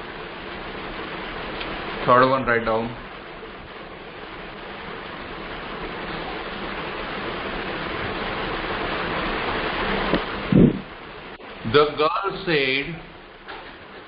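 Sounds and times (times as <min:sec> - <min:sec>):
steady rushing noise: 0:00.0 - 0:14.0.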